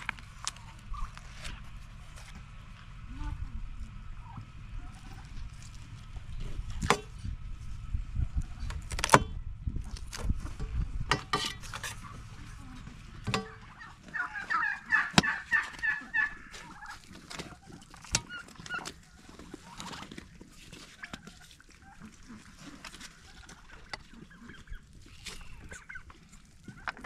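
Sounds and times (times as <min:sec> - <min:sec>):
knife scraping metal tray: 0:11.1 - 0:12.1
fowl gobbling call: 0:13.4 - 0:20.1, 0:20.9 - 0:27.0.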